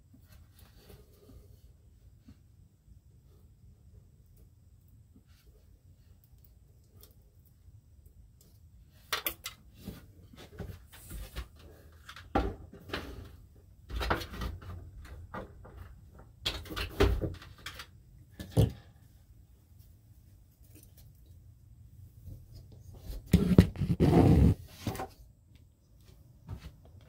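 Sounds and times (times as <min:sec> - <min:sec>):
clicks and knocks from wiring: 0:09.0 - 0:09.7, 0:13.9 - 0:18.9.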